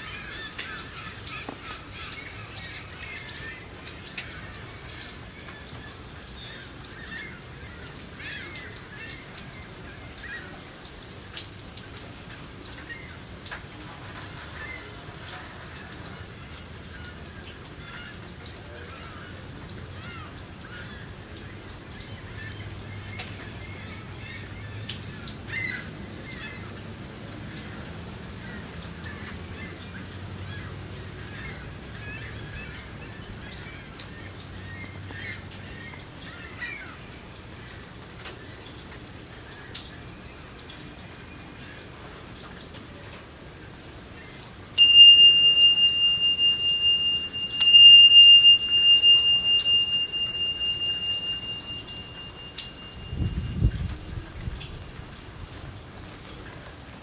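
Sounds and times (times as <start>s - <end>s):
steady rain over a lake: 0.0s - 57.0s
bell ringing: 44.8s - 53.4s
bird chirps: 44.8s - 53.6s.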